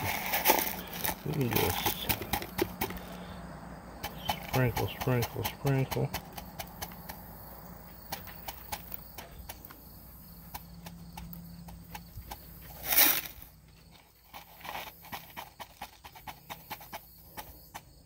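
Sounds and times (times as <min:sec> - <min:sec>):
small stones clicking: 0:00.0 - 0:03.2, 0:04.0 - 0:07.2
stones rattling: 0:00.0 - 0:03.2, 0:04.0 - 0:07.2.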